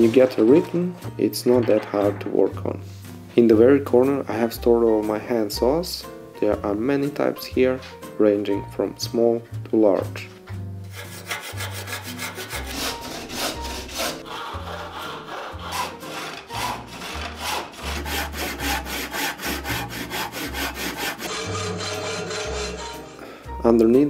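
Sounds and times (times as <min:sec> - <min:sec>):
hand saw cutting wood: 0:10.9 - 0:23.2.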